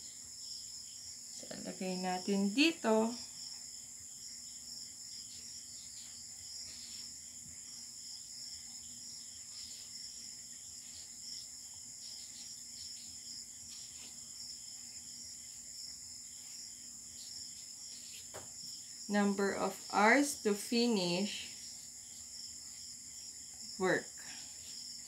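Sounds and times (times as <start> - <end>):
crickets chirring: 0.0 - 25.0
marker scratching on paper: 5.9 - 7.2, 12.1 - 14.4, 17.2 - 18.4.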